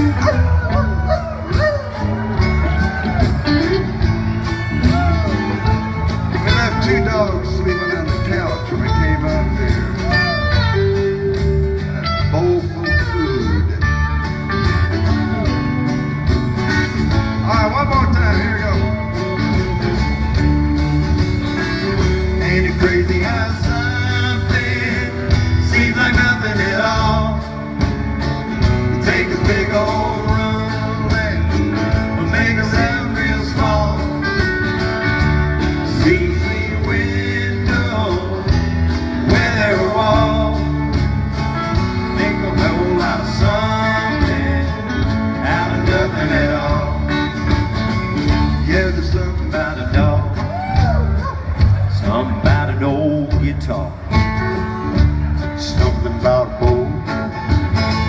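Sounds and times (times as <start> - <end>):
acoustic country band: 0.0 - 58.0.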